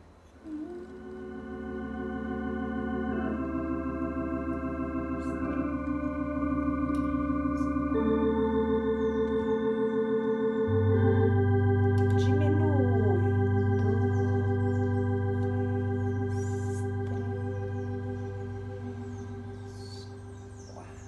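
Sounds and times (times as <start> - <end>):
electronic organ playing hymn: 0.0 - 21.0.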